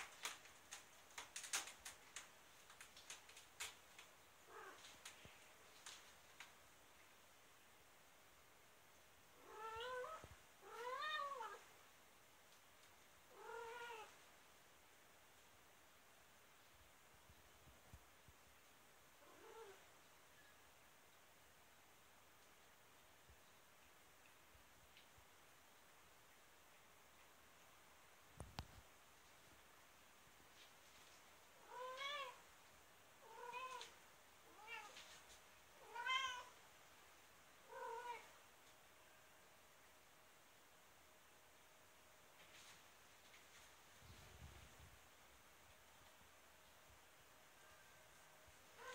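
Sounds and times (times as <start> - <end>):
cat meowing: 9.4 - 11.6, 13.3 - 14.1, 31.6 - 32.4, 33.2 - 33.9, 34.5 - 35.0, 35.8 - 36.5.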